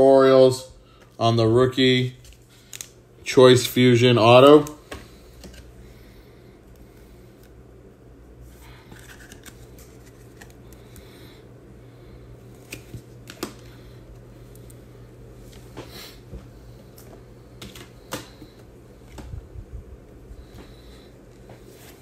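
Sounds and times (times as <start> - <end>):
steady low hum: 0.0 - 22.0
trading cards sliding and rustling: 8.4 - 11.0, 12.4 - 14.7.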